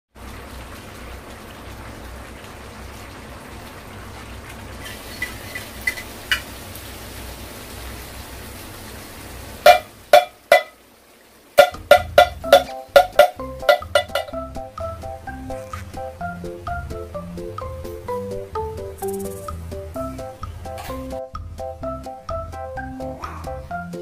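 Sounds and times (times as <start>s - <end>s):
food simmering with a hiss: 0.2s - 13.4s, 18.8s - 21.2s
metal spoon clinking on pan: 11.6s - 14.3s
bouncy plucked music: 11.6s - 24.0s.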